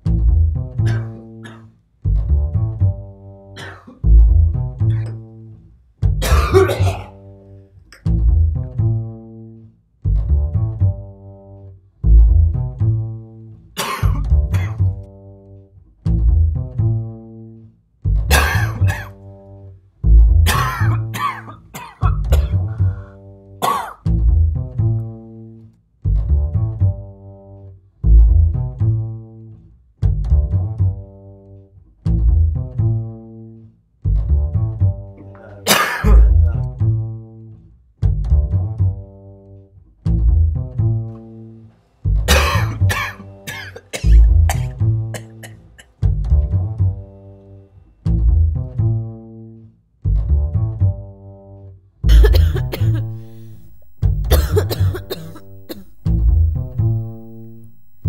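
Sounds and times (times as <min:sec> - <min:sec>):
plucked bass notes: 0:00.0 - 0:01.1, 0:02.1 - 0:03.2, 0:04.0 - 0:05.3, 0:06.0 - 0:07.0, 0:08.0 - 0:09.2, 0:10.1 - 0:11.2, 0:12.0 - 0:13.2, 0:14.0 - 0:15.1, 0:16.1 - 0:17.0, 0:18.1 - 0:19.0, 0:20.0 - 0:21.2, 0:22.0 - 0:23.0, 0:24.1 - 0:25.0, 0:26.1 - 0:27.0, 0:28.0 - 0:29.1, 0:30.0 - 0:31.0, 0:36.0 - 0:37.0, 0:44.0 - 0:45.0, 0:52.1 - 0:58.0
person coughing: 0:00.9 - 0:01.7, 0:03.6 - 0:04.0, 0:06.2 - 0:07.2, 0:13.8 - 0:14.9, 0:18.3 - 0:19.2, 0:20.5 - 0:22.9, 0:23.6 - 0:24.0, 0:35.4 - 0:36.6, 0:42.3 - 0:45.9, 0:52.1 - 0:58.0.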